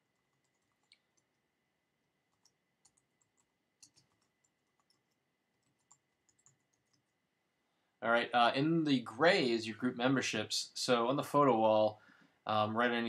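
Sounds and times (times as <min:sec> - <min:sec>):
computer keyboard typing: 0:00.0 - 0:01.4, 0:02.2 - 0:07.2.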